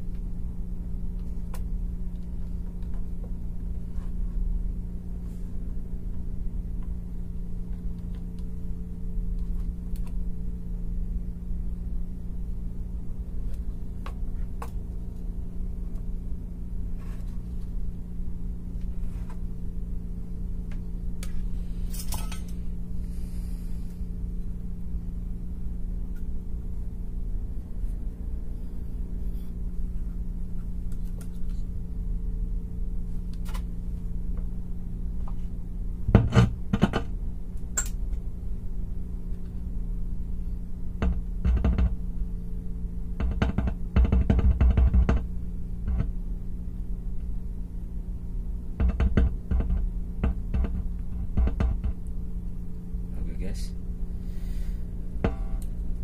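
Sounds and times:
steady low hum: 0.0 - 56.0
clinks and knocks of small tools: 21.9 - 22.6.

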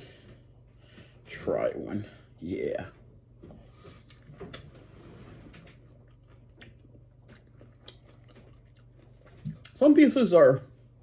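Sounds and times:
man chewing pineapple: 3.3 - 9.8.

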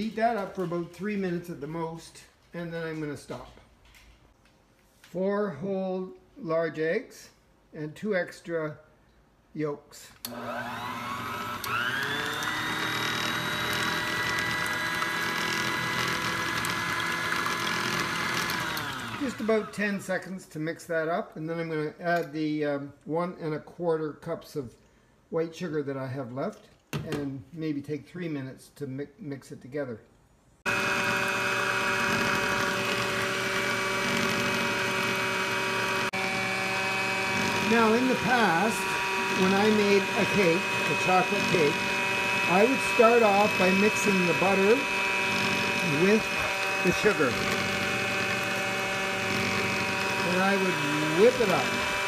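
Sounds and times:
stand mixer motor whining: 10.3 - 19.8, 30.7 - 52.0
beaters whisking eggs: 11.2 - 19.8, 30.7 - 52.0.

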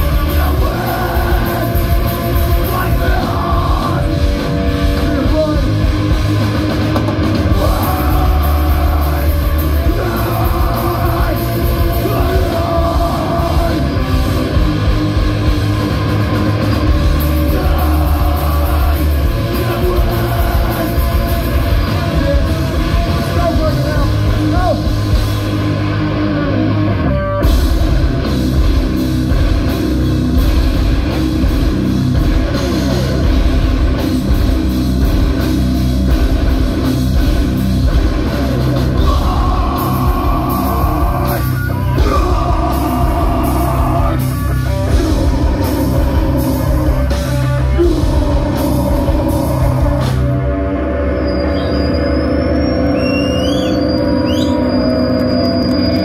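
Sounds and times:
vocals: 0.0 - 15.6, 16.2 - 25.1, 38.2 - 50.9
drum kit: 0.0 - 50.6
distorted electric guitars: 0.0 - 56.0.

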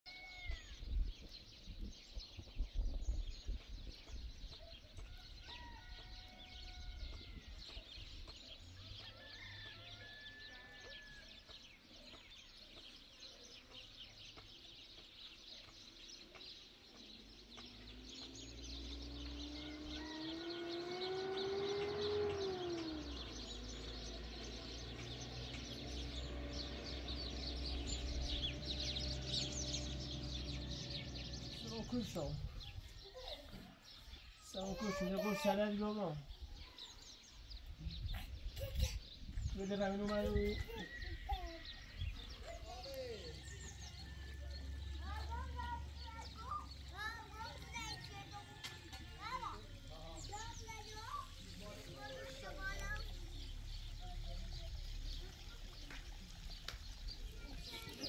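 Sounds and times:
bird call rising and falling: 8.7 - 11.4, 16.9 - 35.7
birds chirping and whistling: 13.6 - 58.0.

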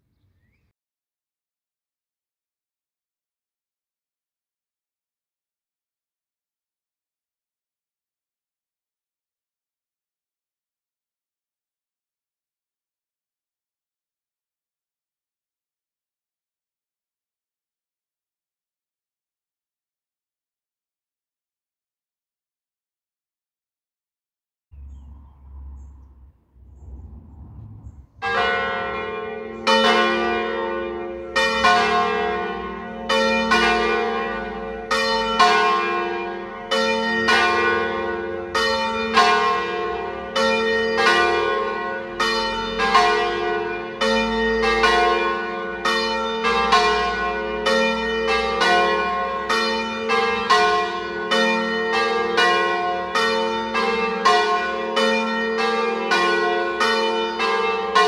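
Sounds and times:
church bells pealing: 24.8 - 58.0.

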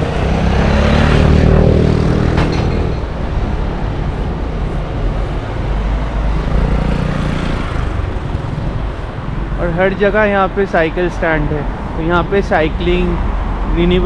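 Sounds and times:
passing cars rumbling: 0.0 - 14.0.

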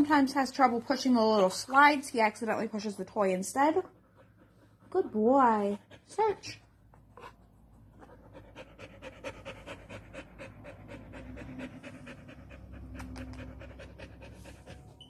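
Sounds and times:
dog panting: 3.4 - 15.0.

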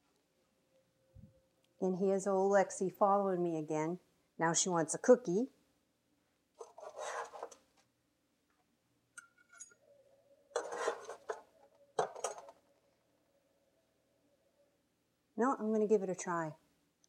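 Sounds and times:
paper rustling: 6.6 - 7.6
spatula scraping baking sheet: 6.6 - 7.6, 10.6 - 11.4
faint clinks: 9.2 - 10.0.

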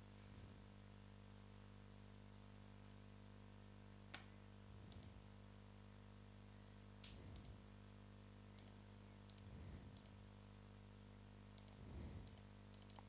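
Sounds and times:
low electrical hum: 0.0 - 13.0
computer mouse clicks: 4.9 - 5.2, 7.0 - 7.6, 8.6 - 10.2, 11.6 - 13.0.

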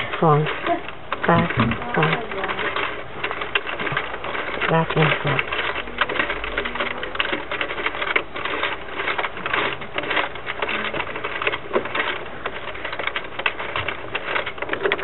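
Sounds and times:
knitting machine plastic clatter: 0.0 - 15.0.

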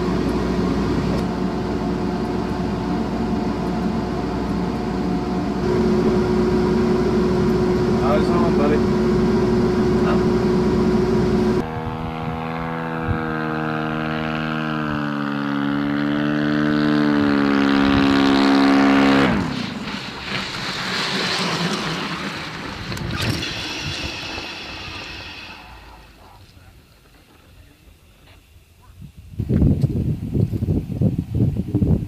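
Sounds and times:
steady equipment hum: 0.0 - 13.0
drone engine and propeller: 0.0 - 27.4
high whine: 0.0 - 28.4.

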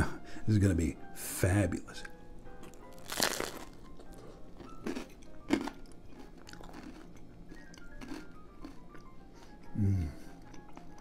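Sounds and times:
person biting and chewing bread: 2.6 - 9.8.

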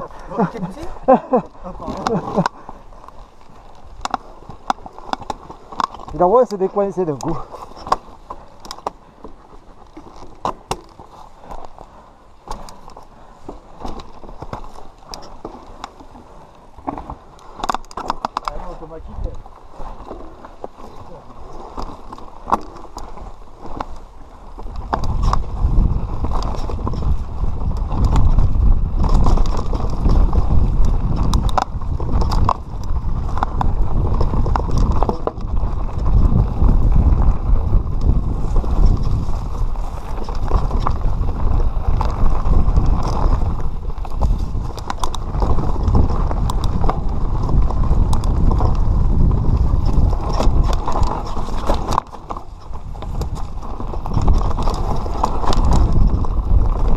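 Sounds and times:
bike clicking and rattling: 0.0 - 56.9
bike tyre noise: 0.0 - 56.9
wind buffeting microphone: 21.1 - 56.9.

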